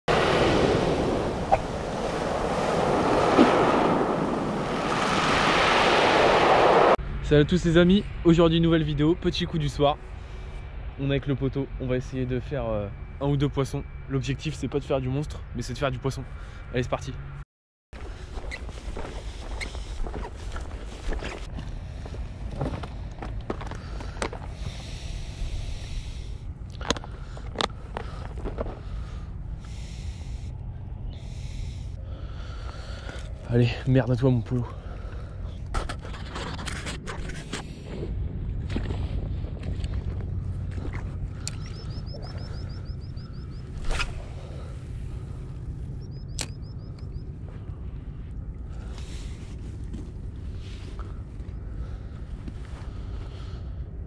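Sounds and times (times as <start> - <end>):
steady low rumble: 6.0 - 17.4, 18.0 - 54.0
rustle of clothing and gear: 18.0 - 23.1
sharp clicks: 46.3 - 47.1.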